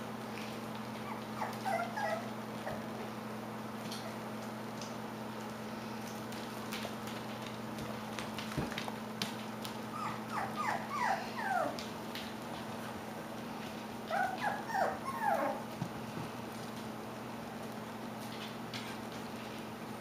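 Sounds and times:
puppy whimpering: 0:00.9 - 0:03.1, 0:09.9 - 0:11.9, 0:14.0 - 0:15.8.

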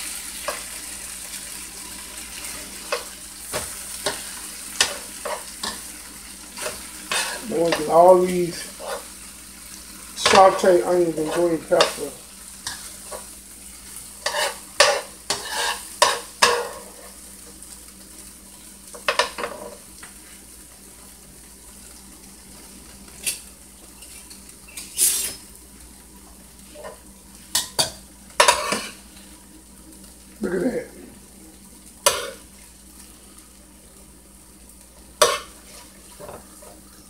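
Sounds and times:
faint sizzle from pan: 0:00.0 - 0:37.0
metal tongs scraping a frying pan: 0:06.6 - 0:09.1, 0:14.2 - 0:17.2, 0:24.0 - 0:25.5, 0:26.8 - 0:29.0, 0:32.0 - 0:32.4, 0:35.2 - 0:36.3.

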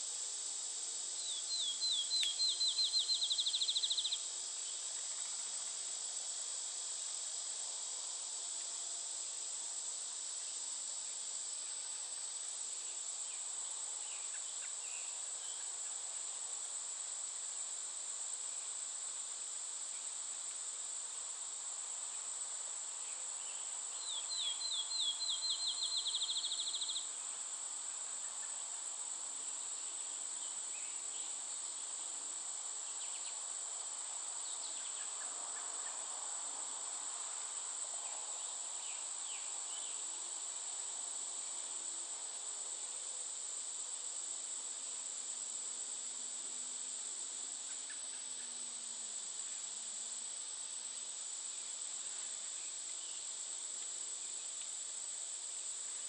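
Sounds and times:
crickets and insects droning: 0:00.0 - 0:56.0
songbird singing: 0:01.2 - 0:04.2, 0:23.5 - 0:27.1.

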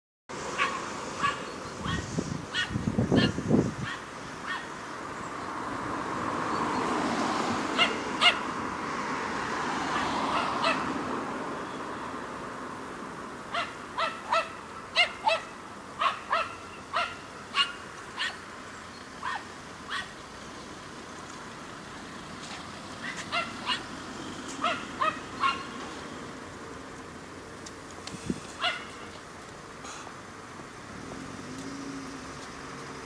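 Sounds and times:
passing car: 0:00.3 - 0:33.0
small dog yapping: 0:23.0 - 0:23.8, 0:24.6 - 0:25.7, 0:28.6 - 0:28.9.

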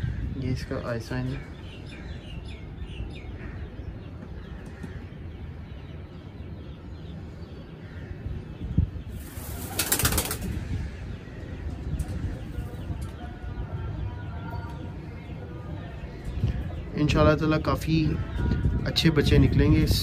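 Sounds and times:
pigeon wings flapping: 0:09.3 - 0:10.5.

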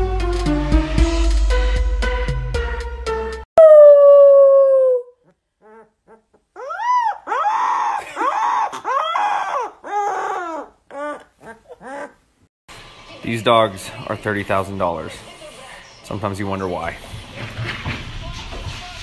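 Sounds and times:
puppy howling: 0:03.6 - 0:12.2.

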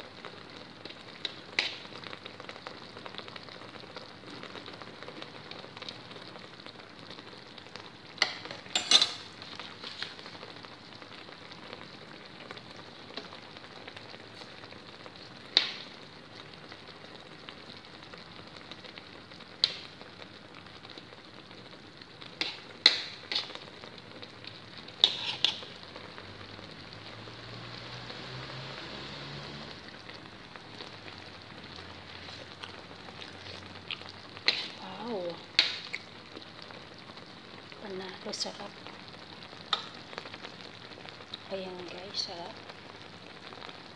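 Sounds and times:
fish sizzling in a wok: 0:00.0 - 0:43.9
metal spoon scraping wok: 0:25.0 - 0:25.7, 0:34.4 - 0:34.8.

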